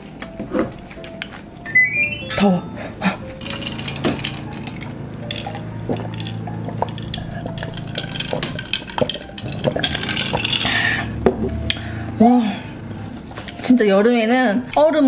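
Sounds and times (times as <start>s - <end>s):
ice clinking in plastic cup: 3.4s - 11.2s.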